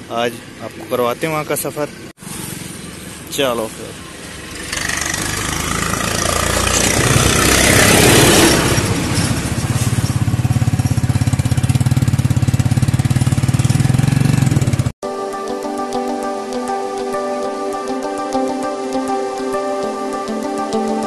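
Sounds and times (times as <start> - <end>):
motorcycle engine pulling away: 2.2 - 14.9.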